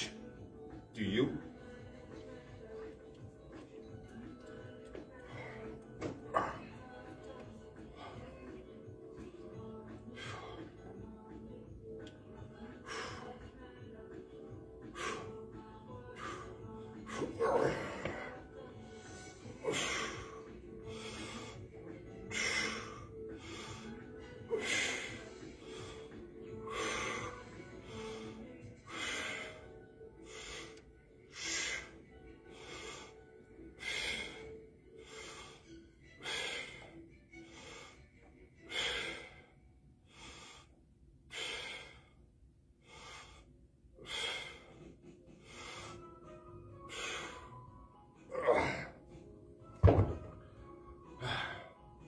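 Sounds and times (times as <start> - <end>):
faint background music: 0.0 - 52.0
man breathing hard: 19.1 - 33.2, 33.8 - 47.7
dumbbells thudding down: 49.8 - 50.4.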